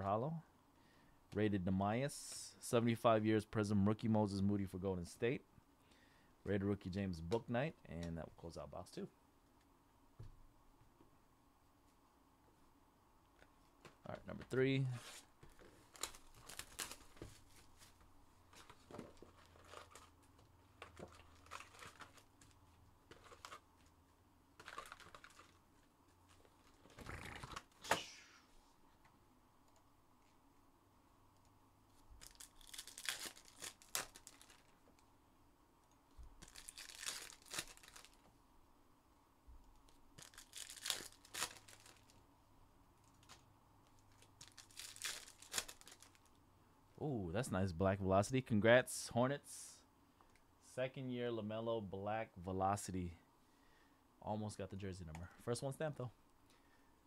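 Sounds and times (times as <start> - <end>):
card pack wrappers tearing and crinkling: 15.6 - 17.4, 18.6 - 20.2, 20.9 - 23.6, 24.6 - 25.6, 32.2 - 34.8, 36.4 - 38.2, 40.2 - 42.2, 44.0 - 46.3.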